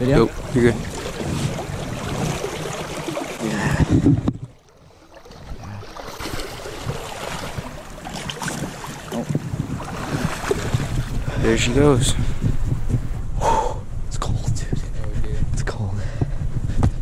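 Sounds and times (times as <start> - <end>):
river water splashing around legs: 0.0 - 11.2
wind buffeting microphone: 0.0 - 17.0.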